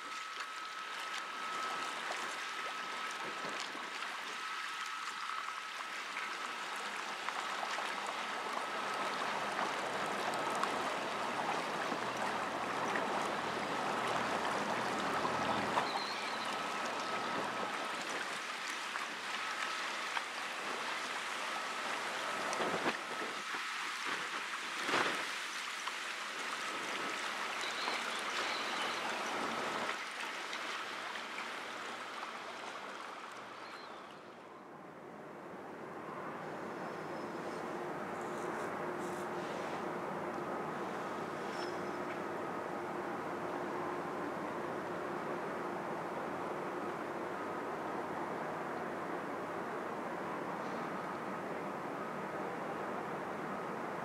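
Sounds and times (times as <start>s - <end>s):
river water rushing and splashing: 0.0s - 34.4s.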